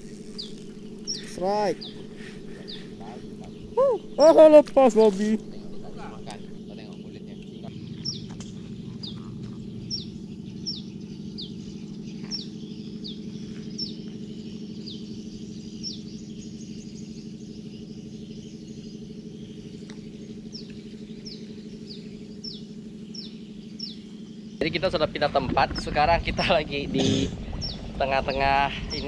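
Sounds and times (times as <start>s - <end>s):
bird chirping: 0.0s - 29.0s
steady low hum: 0.0s - 29.0s.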